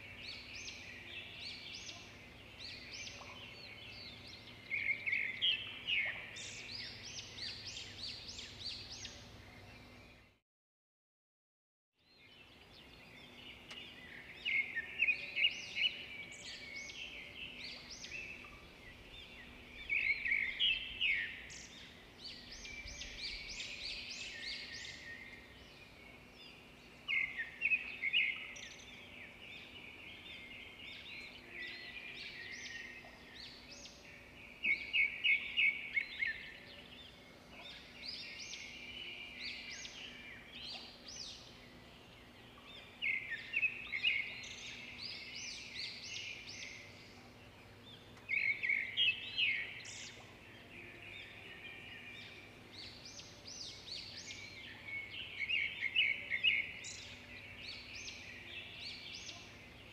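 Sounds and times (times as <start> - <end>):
birds chirping: 12.2 - 59.9.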